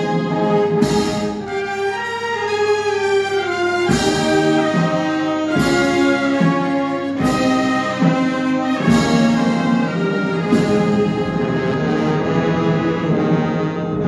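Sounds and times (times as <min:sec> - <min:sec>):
brass band funeral march: 0:00.0 - 0:14.0
heavy percussion stroke: 0:03.4 - 0:14.0.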